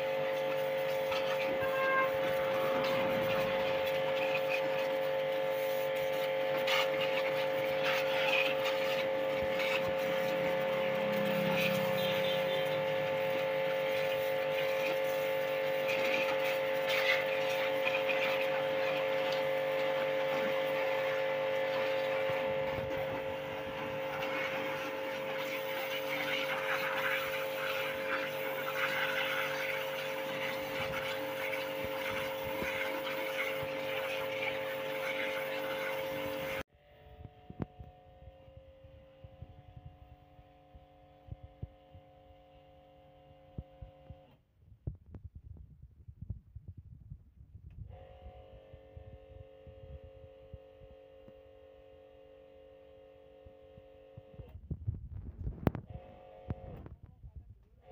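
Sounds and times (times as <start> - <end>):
pressure washer motor hum: 0.0 - 36.6, 47.6 - 57.9
water jet spraying: 0.0 - 36.6.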